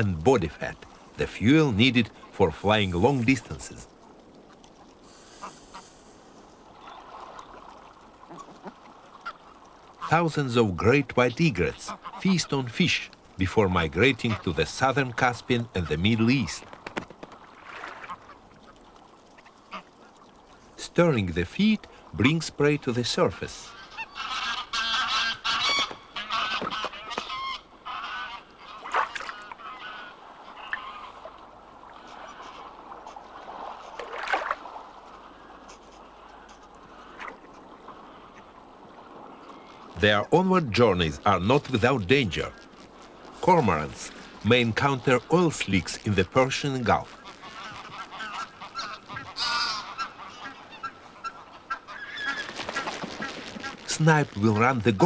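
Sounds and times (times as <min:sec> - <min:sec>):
geese honking: 0:23.6 - 0:31.3, 0:47.0 - 0:54.9.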